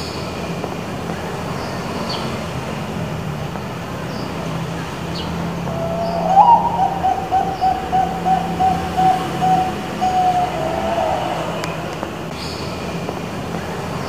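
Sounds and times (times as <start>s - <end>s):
dove cooing: 5.6s - 12.2s.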